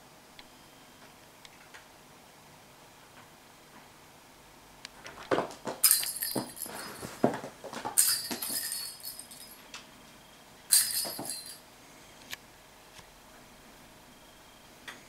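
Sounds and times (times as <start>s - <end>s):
toy ball jingling on wooden floor: 5.6s - 9.6s, 10.7s - 11.6s.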